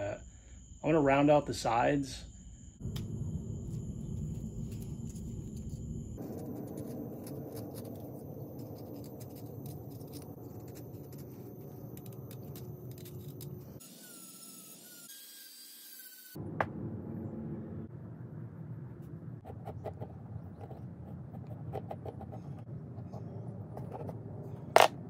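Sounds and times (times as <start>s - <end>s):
rotary tool whine: 2.4s - 16.4s
knife scraping wood: 6.2s - 13.8s.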